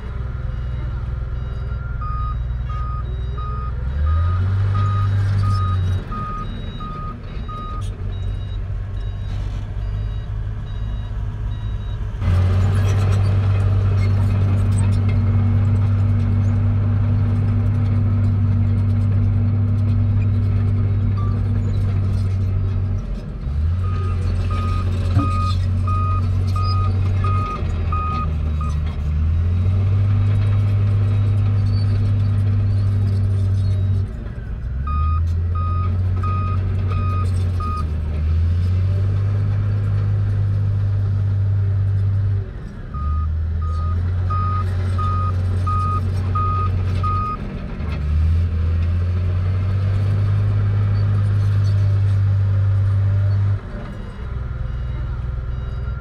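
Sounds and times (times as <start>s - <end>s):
diesel engines running: 0.0s - 56.0s
reversing alarm beeping: 0.4s - 12.0s, 43.0s - 47.4s.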